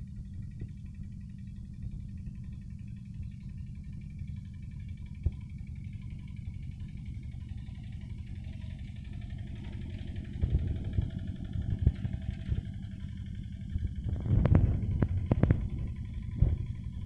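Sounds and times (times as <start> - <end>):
diesel tractor engine chugging: 0.0 - 17.0.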